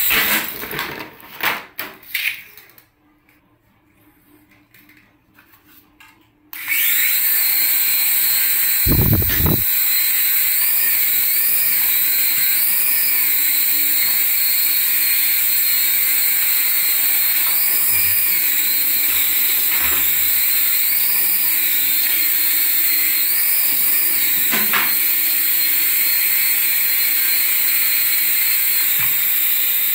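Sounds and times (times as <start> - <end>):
toy helicopter rotors whining: 6.6 - 29.9.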